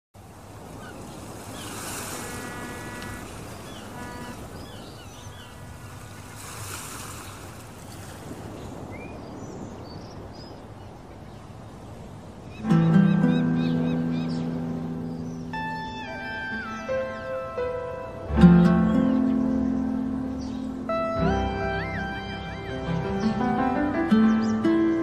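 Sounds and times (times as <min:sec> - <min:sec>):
wind and road noise rushing: 0:00.2 - 0:12.6
faint steady tones: 0:00.6 - 0:06.4.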